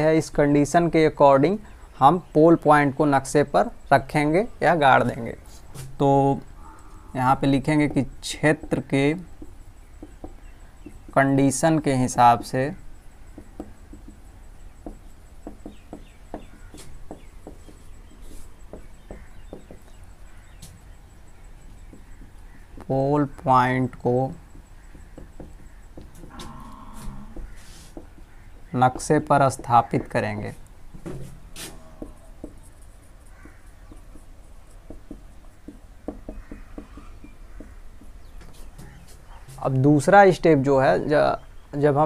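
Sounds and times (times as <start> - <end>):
marker pen writing on whiteboard: 7.4 - 26.4, 27.0 - 39.8
faint high marker squeaks: 16.4 - 22.7, 24.4 - 28.5, 31.4 - 34.8, 36.3 - 39.8.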